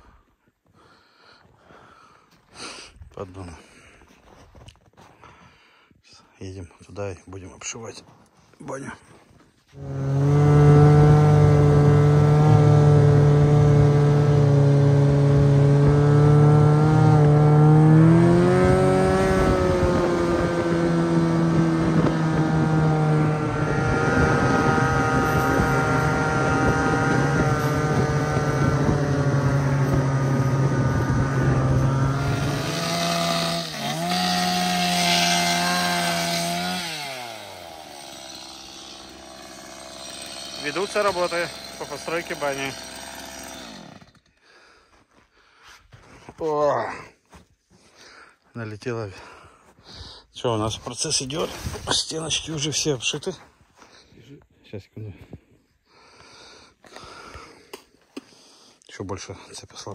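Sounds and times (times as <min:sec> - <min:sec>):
snowmobile engine running: 0:09.7 - 0:37.4.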